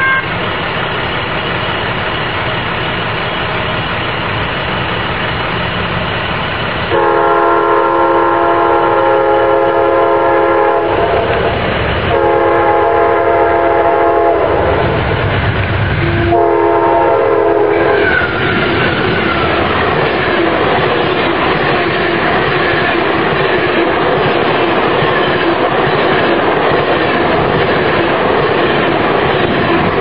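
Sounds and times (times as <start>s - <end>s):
train air horn blasts: 0.0s - 0.3s, 6.9s - 15.0s, 16.0s - 18.7s
train rushing past: 0.0s - 30.0s
faint wheel squeal: 17.9s - 19.6s.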